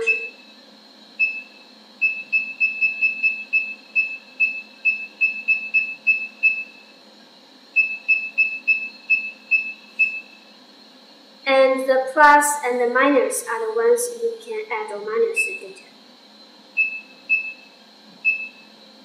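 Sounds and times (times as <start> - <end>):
short high beeps: 0.0 - 0.4.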